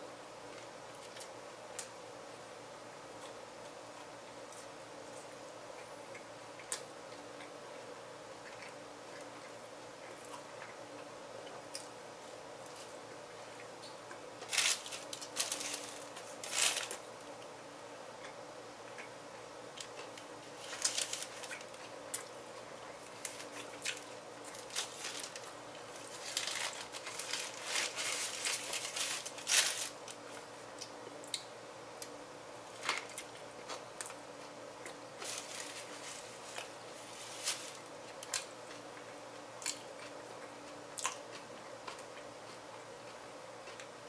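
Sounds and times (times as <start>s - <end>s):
faint steady hum: 0.0s - 44.0s
paper wrapper crinkling: 14.4s - 17.0s, 20.5s - 21.7s, 23.2s - 30.2s, 35.2s - 37.9s.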